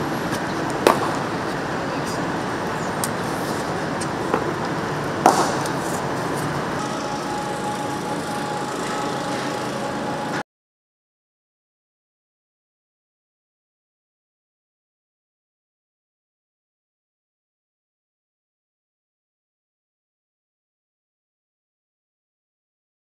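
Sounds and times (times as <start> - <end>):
outdoor background noise: 0.0 - 10.4
cricket ball being struck: 0.8 - 1.2, 5.2 - 5.8.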